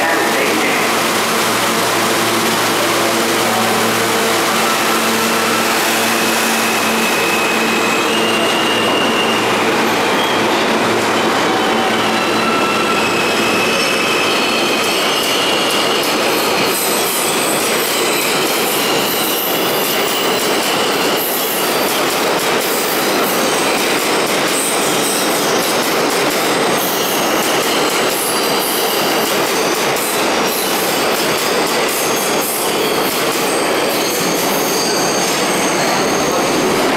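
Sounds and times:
train wheels clattering on rails: 0.0 - 36.9
high-pitched wheel squeal: 3.0 - 20.4, 32.1 - 36.9.

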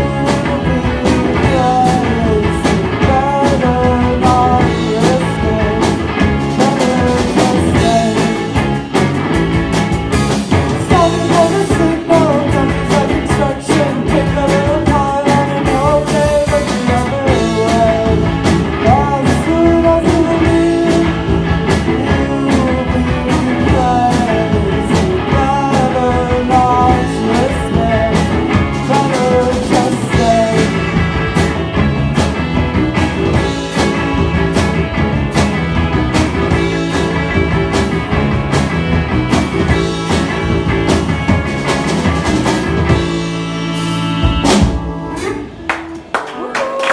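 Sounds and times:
drum kit: 0.0 - 46.9
electric guitars: 0.0 - 46.9.

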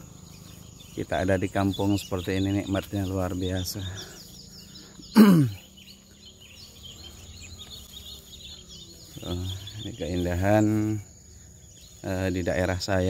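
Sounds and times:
insects chirping: 0.0 - 13.0
throat clearing: 5.1 - 5.6.

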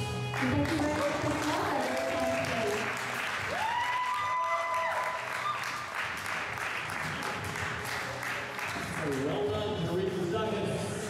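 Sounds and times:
background music: 0.0 - 11.0
audience applauding: 0.3 - 9.5.

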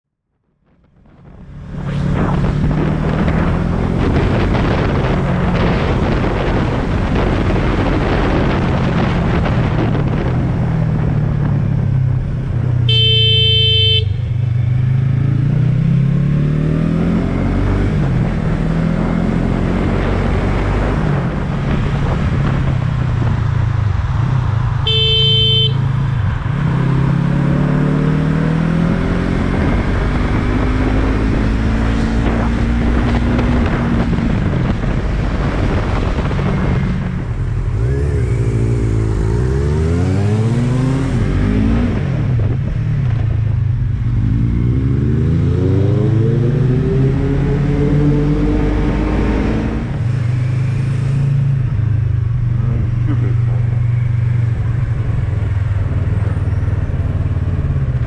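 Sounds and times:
motorcycle engine revving: 1.1 - 58.0
vehicle horn: 12.9 - 14.4, 24.8 - 26.0.

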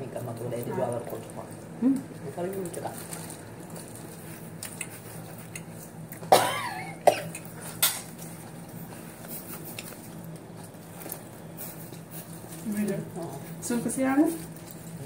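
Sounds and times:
woman coughing: 6.3 - 7.4.

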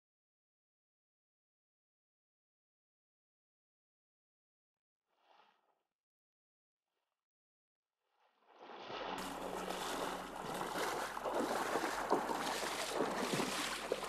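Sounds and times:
waders splashing through water: 8.6 - 14.0.

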